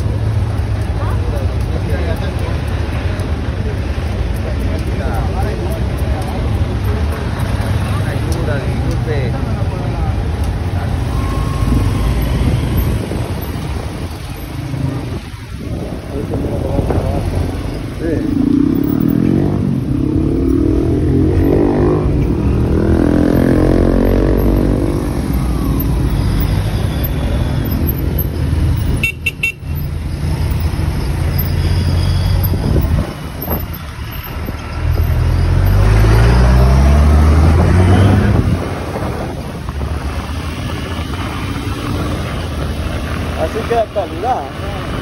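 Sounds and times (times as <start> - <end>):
city traffic: 0.0 - 45.0
vehicle engine speeding up: 10.2 - 29.0, 30.0 - 44.0.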